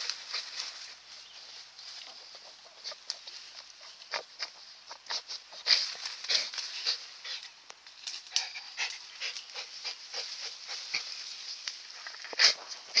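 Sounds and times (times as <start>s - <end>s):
dog snuffling: 0.0s - 7.6s, 8.3s - 13.0s
dog digging in soil: 0.0s - 13.0s
dog panting: 8.3s - 11.2s.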